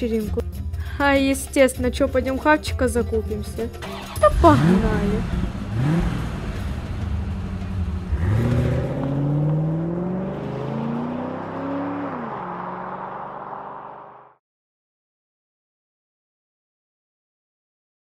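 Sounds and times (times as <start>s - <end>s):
car engine accelerating: 3.8s - 14.4s.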